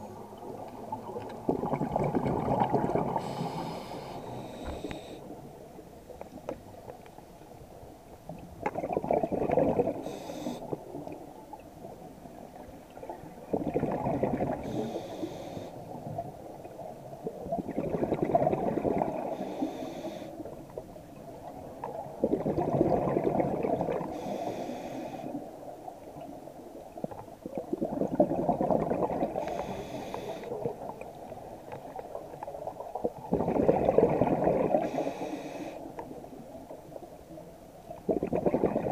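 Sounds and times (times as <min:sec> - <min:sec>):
exhaled bubbles gurgling: 0:00.0 - 0:05.8, 0:08.3 - 0:38.9.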